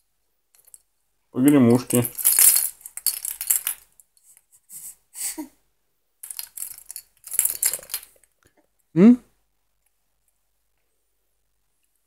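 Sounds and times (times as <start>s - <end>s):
plastic rattle shaken: 1.7s - 3.9s, 6.2s - 8.3s.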